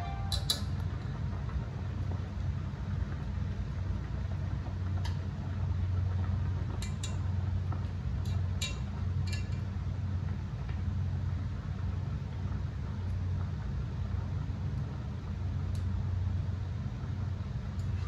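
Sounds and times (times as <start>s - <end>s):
steady low hum: 0.0s - 18.0s
chopsticks clicking against pot: 0.3s - 0.7s.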